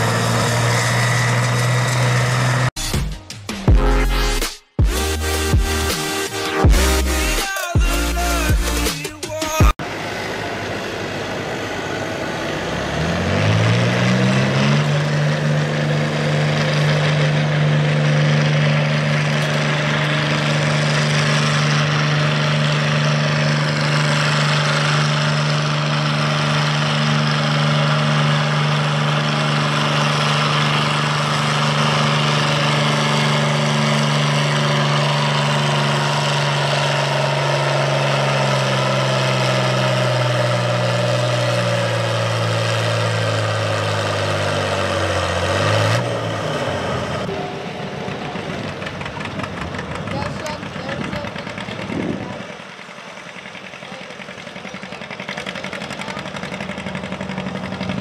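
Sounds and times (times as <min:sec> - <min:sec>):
heavy diesel tractor engine: 0:00.0 - 0:03.0, 0:04.8 - 0:58.0.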